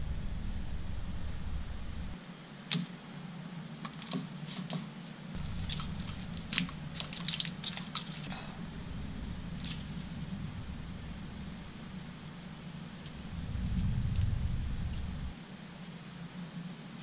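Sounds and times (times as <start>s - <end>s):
low hum: 0.0s - 2.2s, 5.4s - 16.7s.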